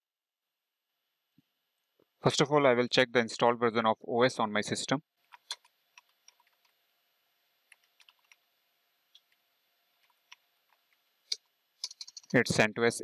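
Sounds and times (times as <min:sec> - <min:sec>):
faint keystrokes on keyboard: 0:05.3 - 0:06.8, 0:07.7 - 0:08.4.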